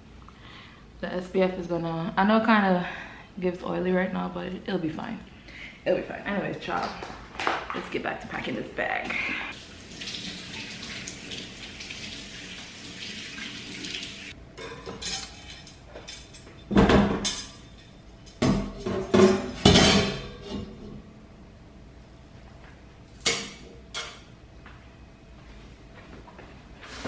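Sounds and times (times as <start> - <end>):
running water hissing: 9.6 - 14.4.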